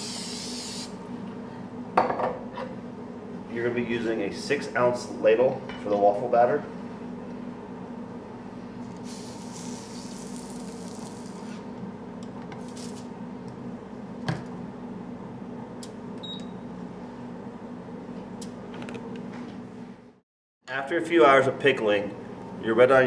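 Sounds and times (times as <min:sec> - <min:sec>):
steady background hum: 0:00.0 - 0:23.0
batter sizzling on waffle iron: 0:09.0 - 0:11.6.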